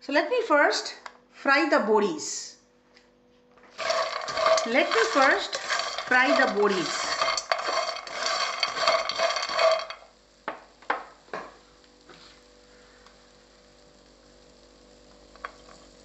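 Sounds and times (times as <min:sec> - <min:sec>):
spatula scraping a wok: 0:03.7 - 0:10.1
dumplings frying: 0:03.7 - 0:16.0.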